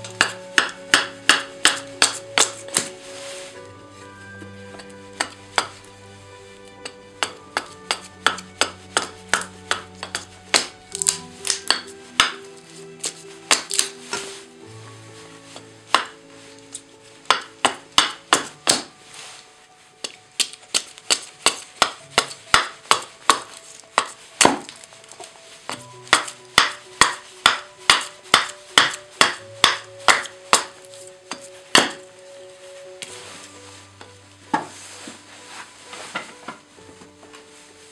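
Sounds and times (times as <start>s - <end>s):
hatchet chopping wood: 0.0s - 2.9s, 6.8s - 12.4s, 13.0s - 13.9s, 15.9s - 16.2s, 17.3s - 18.9s, 20.0s - 24.8s, 25.7s - 32.0s
light background music: 0.0s - 37.9s.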